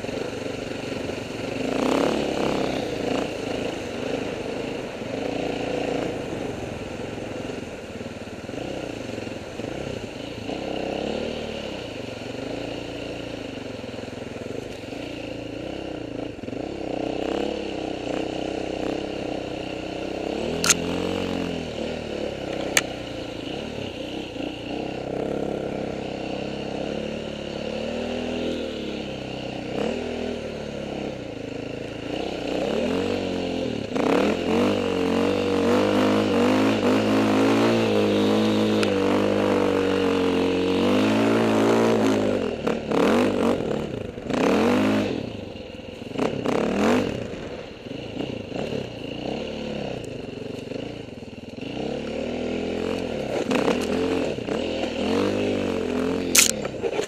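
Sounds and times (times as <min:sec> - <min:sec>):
dirt bike engine revving: 0:00.0 - 0:07.5, 0:08.4 - 0:14.2, 0:14.8 - 0:57.0
sharp clicks: 0:20.6 - 0:20.8.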